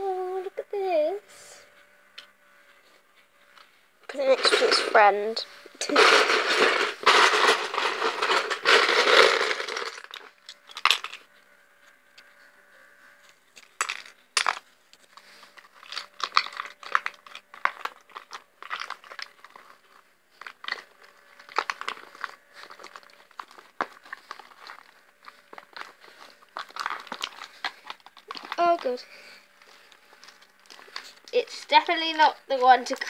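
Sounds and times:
plastic bricks rattling: 0:04.1 - 0:05.1, 0:05.8 - 0:11.2, 0:13.6 - 0:14.6, 0:15.6 - 0:29.0
bricks clicking into plastic tub: 0:05.8 - 0:11.1.

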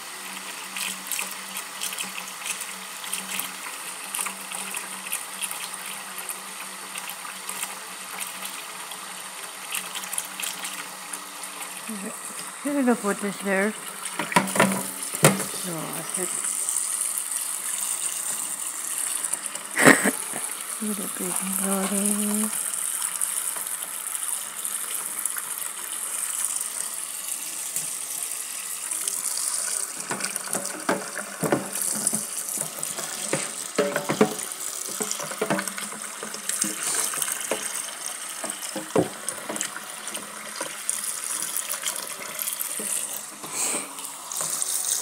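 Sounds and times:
tap water running into sink: 0:00.0 - 0:45.0
hairbrushes knocking against sink: 0:14.2 - 0:15.6, 0:33.3 - 0:35.8.

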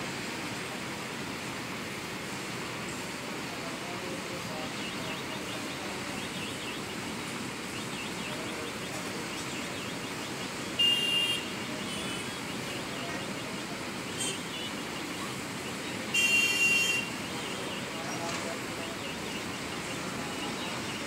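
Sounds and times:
town traffic noise: 0:00.0 - 0:21.0
high-pitched vehicle horn honking: 0:10.7 - 0:12.6, 0:14.1 - 0:14.9, 0:16.0 - 0:18.0.

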